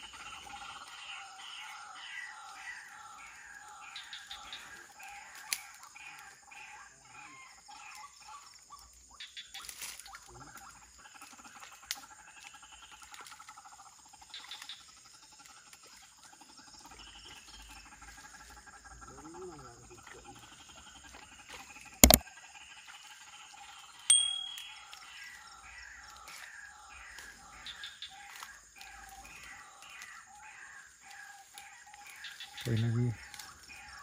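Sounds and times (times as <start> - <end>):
night insects trilling: 0.0 - 34.0
sharp clicks: 22.0 - 22.2.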